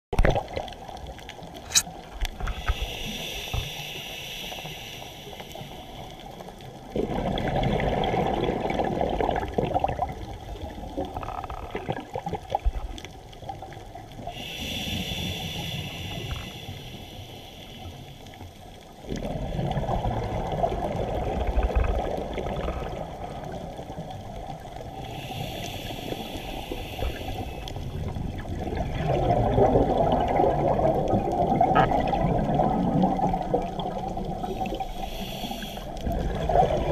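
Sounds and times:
hissing regulator inhale: 0:02.4 - 0:06.6, 0:14.2 - 0:18.7, 0:24.9 - 0:28.2, 0:34.4 - 0:36.2.

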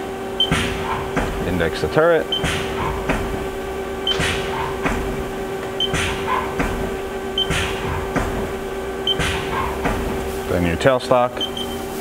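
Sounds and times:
machine hum: 0:00.0 - 0:12.0
tool turret clunk: 0:00.4 - 0:10.5
short machine beep: 0:11.4 - 0:11.9.

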